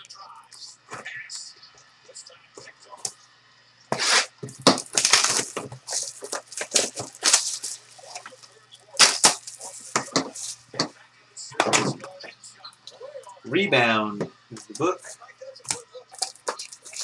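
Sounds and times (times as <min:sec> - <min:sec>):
plastic shrink wrap crinkling: 0:04.0 - 0:10.8, 0:15.7 - 0:17.0.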